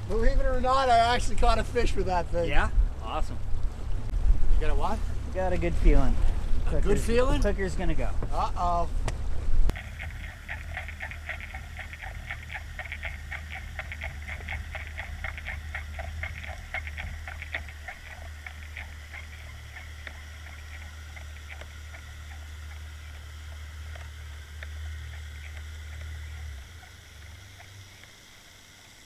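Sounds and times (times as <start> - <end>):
low steady hum: 0.0 - 29.0
rapid irregular clicking underwater: 9.7 - 29.0.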